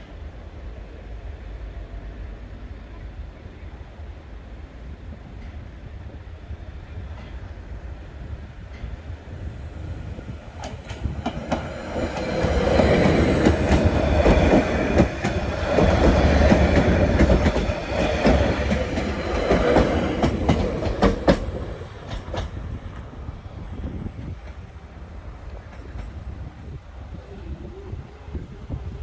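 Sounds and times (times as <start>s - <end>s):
train passing: 0.0s - 29.0s
wheels clacking over rail joints: 10.6s - 22.6s.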